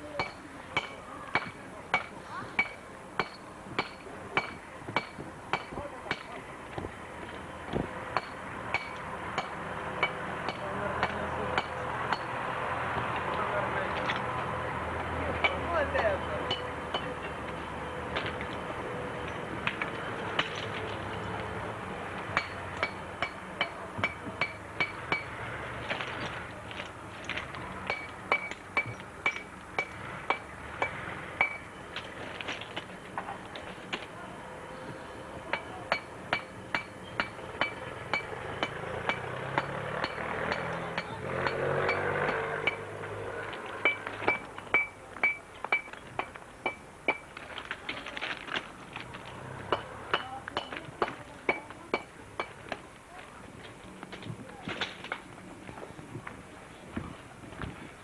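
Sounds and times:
hammer blows ringing on metal: 0:15.4 - 0:17.2, 0:22.4 - 0:25.4, 0:27.9 - 0:31.7, 0:35.5 - 0:43.0, 0:43.8 - 0:47.3.

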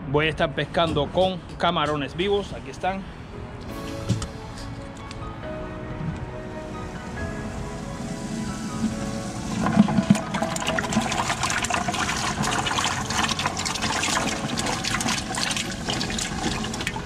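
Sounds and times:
aerator bubbling: 0:06.1 - 0:17.0
water splashing in bucket: 0:08.8 - 0:17.0.

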